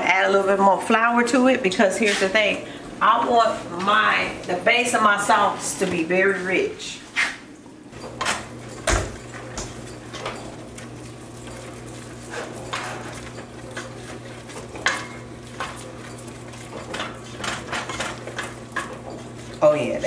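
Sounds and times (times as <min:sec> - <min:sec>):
wooden spoon scraping a pot: 0:08.0 - 0:20.0.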